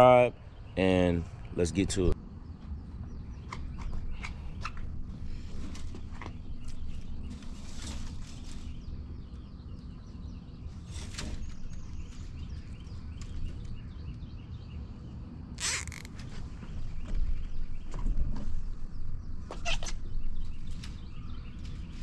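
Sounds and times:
zip tie ratcheting: 15.6 - 16.2.

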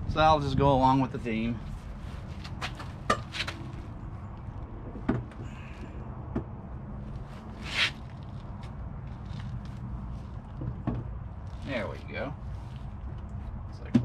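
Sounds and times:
manifold knocks and clunks: 4.9 - 5.5, 6.2 - 6.6, 10.5 - 11.4, 13.8 - 14.0
short scraping slide: 7.6 - 8.0.

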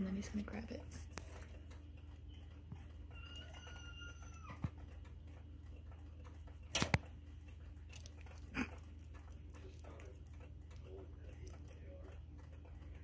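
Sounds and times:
low steady hum: 0.0 - 13.0
chameleon biting smacks and clicks: 6.7 - 7.1.

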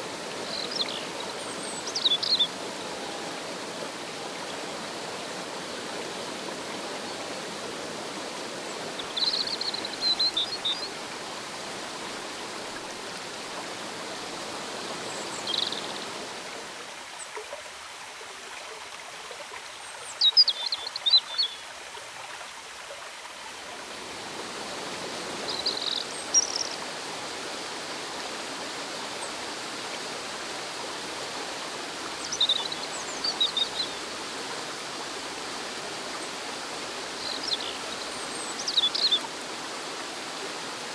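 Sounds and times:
river water rushing over rocks: 0.0 - 40.9
birds chirping: 37.2 - 39.2.

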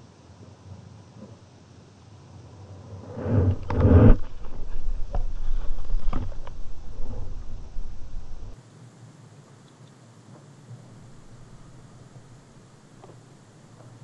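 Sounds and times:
muffled underwater rumble: 2.5 - 8.6.

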